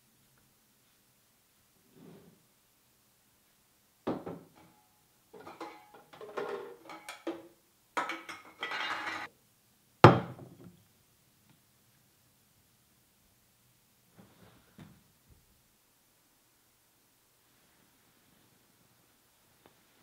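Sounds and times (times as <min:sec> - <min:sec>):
glass bottles clinking: 0:05.4 - 0:09.3.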